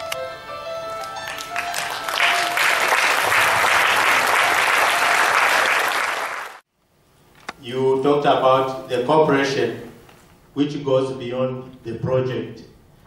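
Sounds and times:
soft instrumental music: 0.0s - 4.0s
audience applauding: 1.0s - 6.6s.

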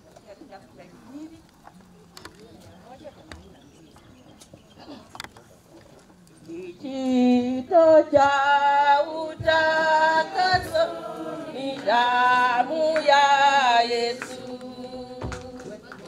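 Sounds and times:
voices singing a hymn: 6.6s - 16.0s.

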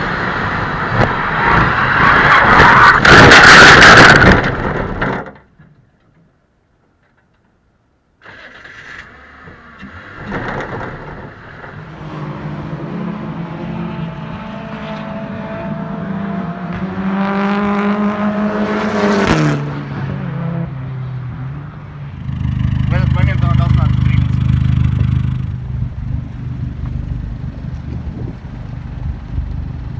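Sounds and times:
race car engine passing: 11.6s - 28.9s.

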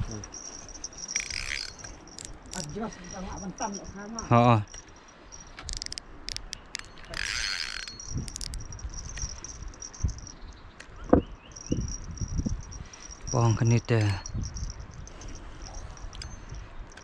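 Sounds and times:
insects buzzing: 0.0s - 17.0s
sharp clicks: 4.7s - 10.9s.

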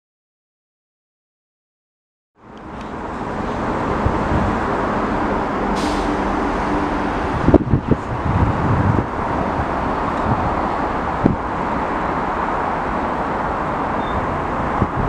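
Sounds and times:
background traffic: 2.4s - 15.0s
train rumbling: 2.4s - 15.0s
brief hiss: 5.7s - 6.3s.

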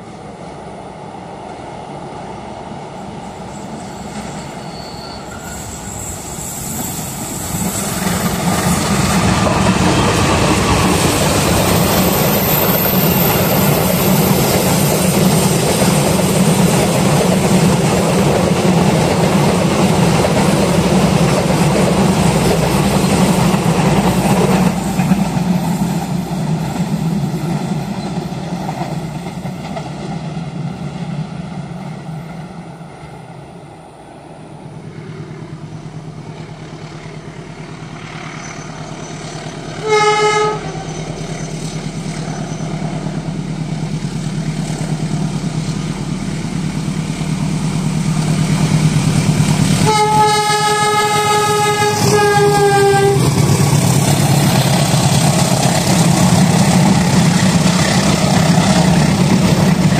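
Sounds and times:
diesel locomotive rumble: 0.0s - 59.9s
locomotive horn blasts: 39.8s - 41.0s, 49.8s - 53.3s.

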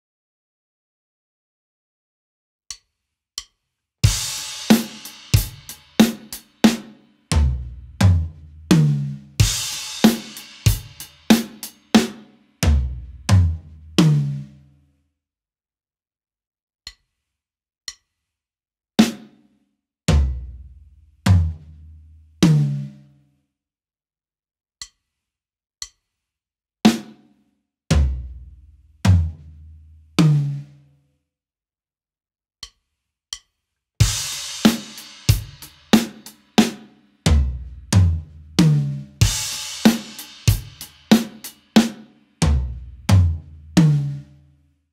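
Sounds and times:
drum groove with hi-hat: 2.7s - 14.5s, 19.0s - 19.5s, 20.1s - 23.0s, 26.9s - 27.3s, 27.9s - 29.5s, 30.2s - 30.7s, 32.6s - 44.4s
snare and tom drum strokes: 4.0s - 14.5s, 19.0s - 19.4s, 34.0s - 44.3s.

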